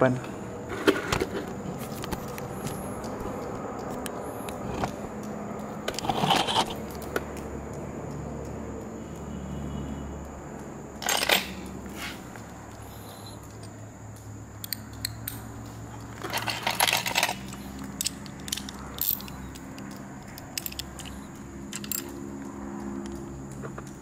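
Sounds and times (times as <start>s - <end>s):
metal hand tools clinking: 11.0s - 12.2s, 14.6s - 23.2s.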